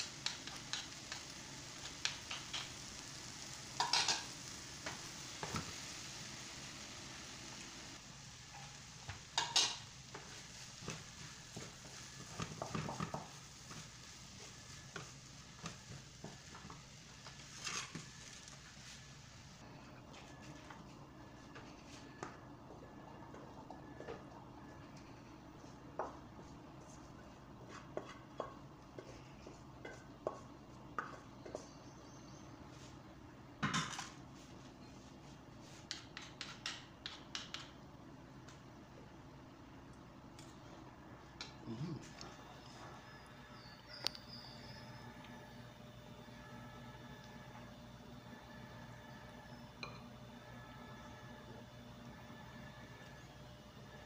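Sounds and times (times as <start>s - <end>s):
faint sizzle: 0.0s - 54.0s
pan clattering on cooktop: 3.8s - 4.4s, 9.3s - 9.8s
spoon scraping frying pan: 3.8s - 4.6s, 9.3s - 15.1s.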